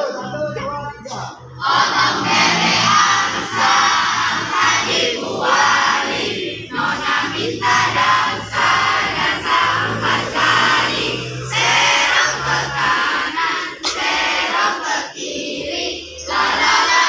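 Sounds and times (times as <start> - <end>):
children singing in unison: 0.0 - 17.0.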